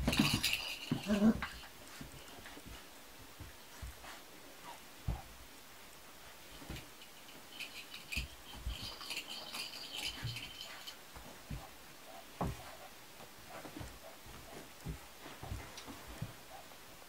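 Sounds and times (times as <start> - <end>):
soft thumps of paws: 0.1 - 5.3, 10.0 - 16.7.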